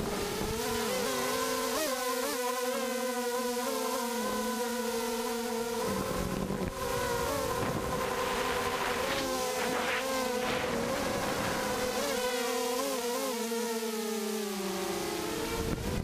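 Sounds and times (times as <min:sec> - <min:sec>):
drone motors whining: 0:05.7 - 0:13.5
rushing air: 0:07.6 - 0:12.2.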